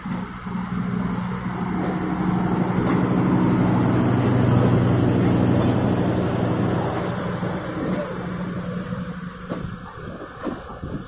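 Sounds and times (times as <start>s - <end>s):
train wheels rumbling on track: 0.0s - 11.0s
low even hum: 0.1s - 10.3s.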